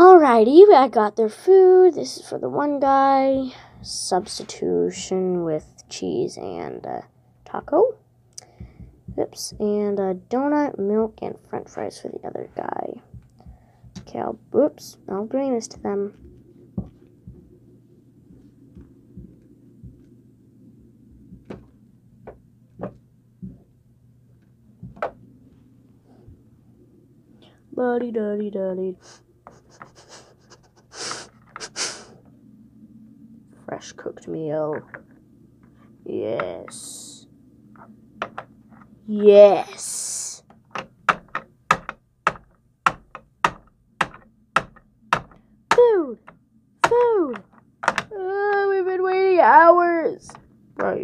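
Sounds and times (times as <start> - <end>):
faint low hum: 0.0 - 51.0
plastic toys clicking and knocking: 38.2 - 38.5, 40.5 - 48.6
plastic figurine tapping on wood: 40.8 - 45.9, 46.8 - 48.1.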